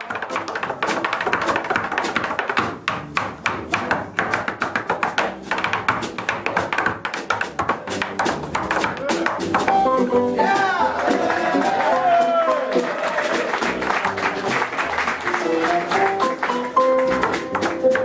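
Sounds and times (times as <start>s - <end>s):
tap shoes on wooden board: 0.0s - 10.8s, 15.2s - 18.0s.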